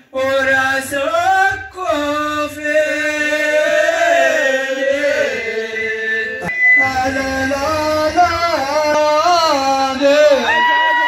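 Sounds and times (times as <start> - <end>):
man chanting through loudspeaker: 0.0 - 3.6, 6.8 - 10.6.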